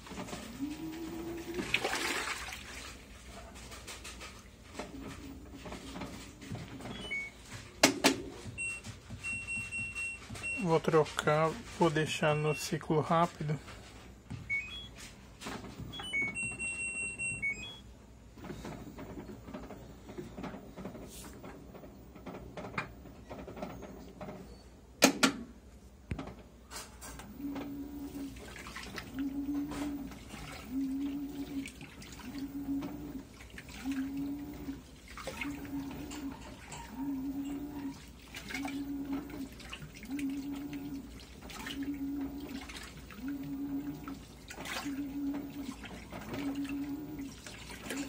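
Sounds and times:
water sloshing in drum: 0.0 - 14.9, 27.4 - 48.0
washing machine motor humming: 0.0 - 25.1, 26.1 - 48.0
control panel beeps: 6.9 - 7.4, 12.0 - 12.9, 14.5 - 15.0, 15.9 - 17.9.

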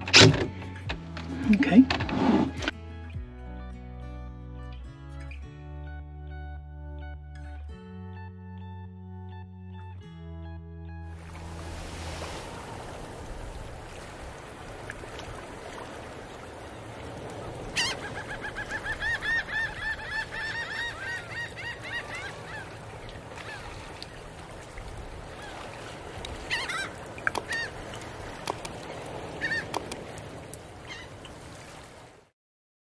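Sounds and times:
outdoor background noise: 0.0 - 3.2, 11.1 - 32.3
birds calling: 16.4 - 30.2, 30.8 - 31.2.

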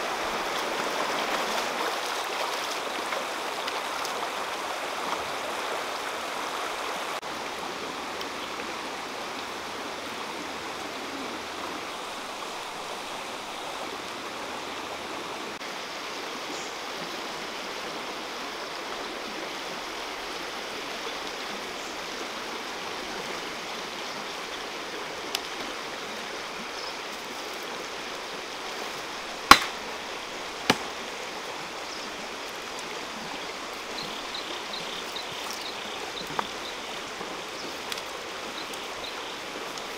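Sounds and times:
stream running over rocks: 0.0 - 39.9
sharp knocks: 29.5 - 29.8.

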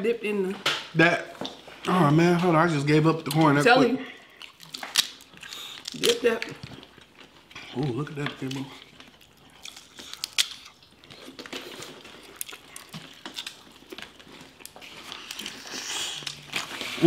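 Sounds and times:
chewing: 1.5 - 17.0
shells cracking and clicking: 4.3 - 7.4, 8.2 - 11.5, 12.3 - 15.5.

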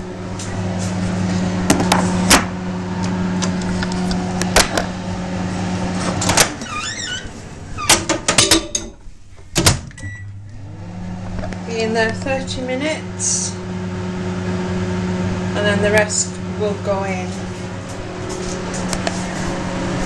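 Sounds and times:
fan oven humming: 0.0 - 20.0
oven door and trays clunking: 6.0 - 10.1
oven timer beep: 10.0 - 10.5.

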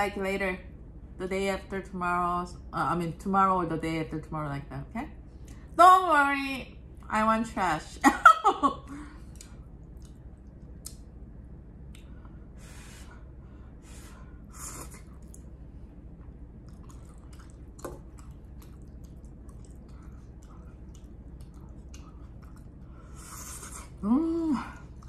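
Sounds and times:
soft chewing: 9.2 - 11.2, 14.7 - 24.0, 24.6 - 25.0
wet mouth clicks and smacks: 9.3 - 11.1, 16.6 - 22.8.

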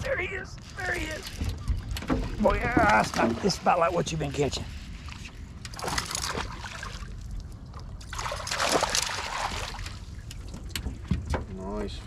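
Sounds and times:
fish splashing at water surface: 8.0 - 10.1.

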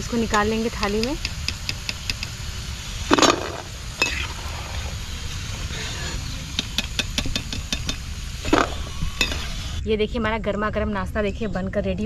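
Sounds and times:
frying oil hissing: 0.0 - 9.8
steel ladle scraping iron pan: 5.7 - 9.6.

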